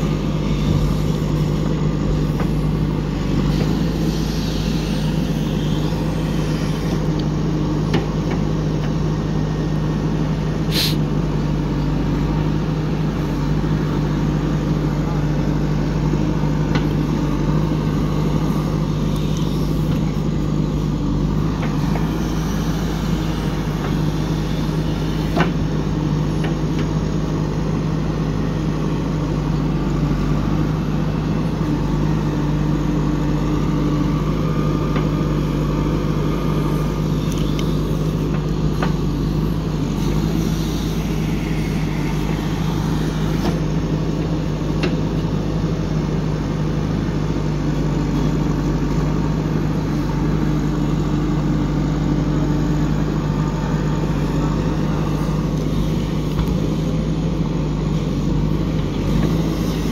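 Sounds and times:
diesel engine running: 0.0 - 59.9
backhoe arm and bucket clanks: 23.0 - 27.6, 34.7 - 45.4.

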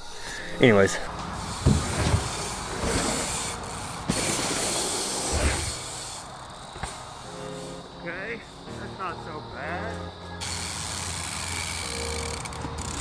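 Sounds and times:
tyres hissing on dirt: 0.1 - 13.0
dull thumps: 1.6 - 3.0.

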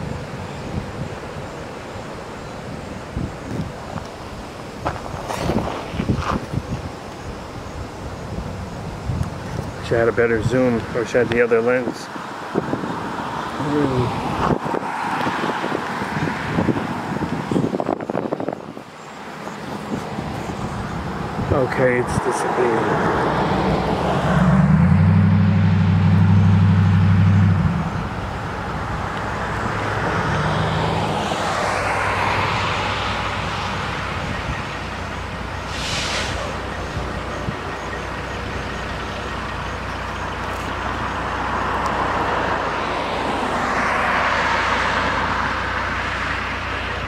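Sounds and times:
vehicles passing: 0.0 - 47.0
deep engine drone: 23.0 - 31.0
short hiss: 35.7 - 36.6.

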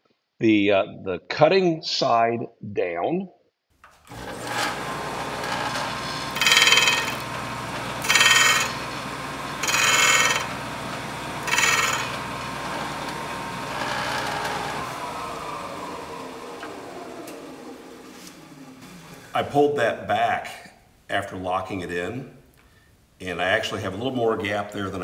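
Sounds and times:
steel scraper grinding hiss: 4.1 - 14.9
sanding disc motor humming: 4.1 - 19.4
motor winding down: 4.1 - 19.5.

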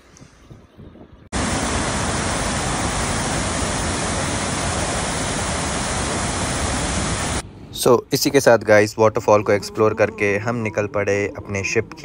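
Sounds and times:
waterfall rushing: 1.4 - 7.4.

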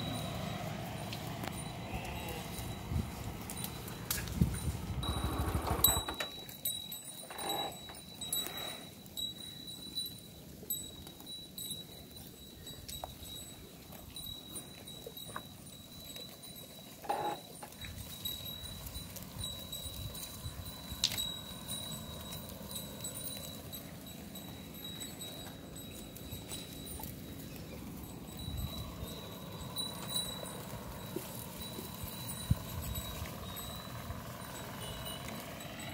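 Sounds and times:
hoof clicks and cropping: 0.0 - 35.9
sheep and goats bleating: 1.4 - 3.6.

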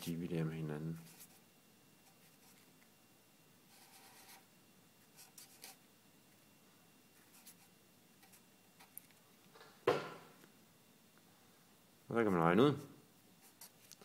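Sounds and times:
marker scratching on paper: 3.7 - 4.5, 5.1 - 5.8, 7.2 - 8.9.

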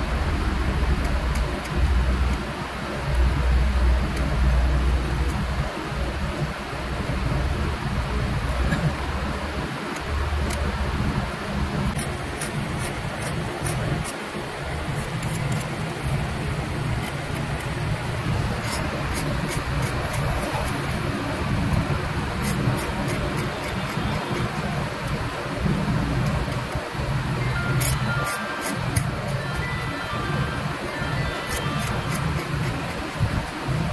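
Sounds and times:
low background rumble: 0.0 - 33.9
metal tool scratching lacquer: 11.9 - 14.2, 14.9 - 15.8, 16.8 - 21.0, 21.6 - 24.7, 27.4 - 33.8.

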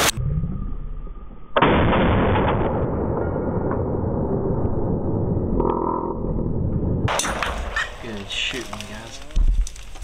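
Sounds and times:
rifle shot with rumble: 1.6 - 4.1, 7.1 - 8.3.

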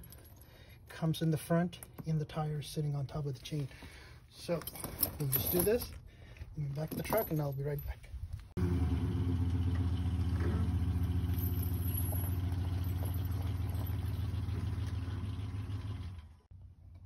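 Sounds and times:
truck engine idling: 8.6 - 16.5.

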